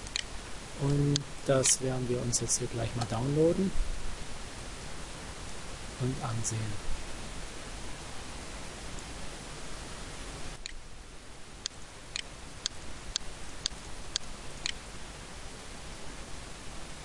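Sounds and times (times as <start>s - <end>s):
computer mouse clicking: 0.0s - 0.3s
microphone hiss: 0.0s - 17.0s.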